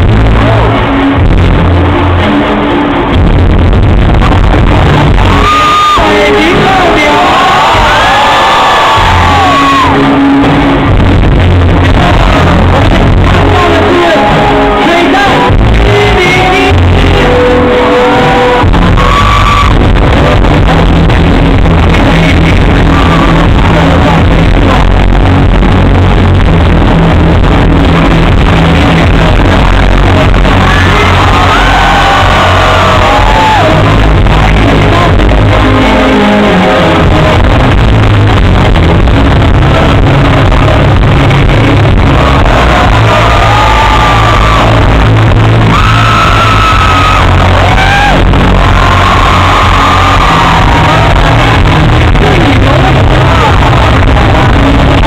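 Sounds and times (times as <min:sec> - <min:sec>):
crowd calling or singing: 0:00.0 - 0:55.0
loud music: 0:00.0 - 0:55.0
crowd shouting: 0:04.4 - 0:10.9, 0:29.9 - 0:34.7, 0:40.6 - 0:55.0.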